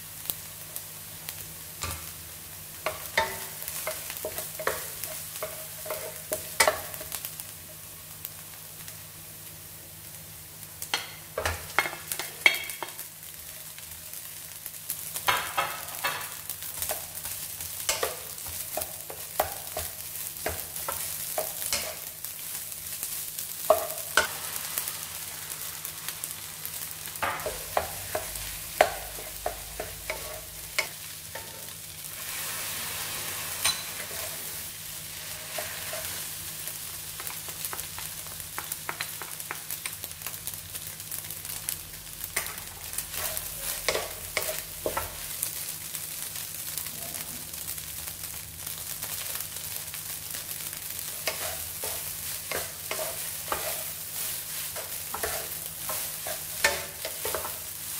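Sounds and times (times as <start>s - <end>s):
hot oil sizzling: 0.0s - 57.9s
wooden spatula scraping a wok: 27.1s - 36.4s, 43.1s - 45.1s, 51.0s - 57.9s.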